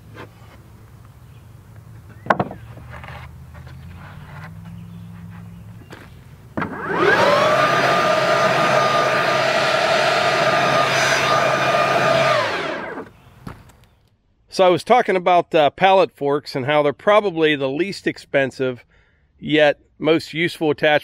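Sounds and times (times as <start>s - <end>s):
wooden board knocking on lumber: 2.2s - 2.6s
motor high whine: 6.6s - 13.2s.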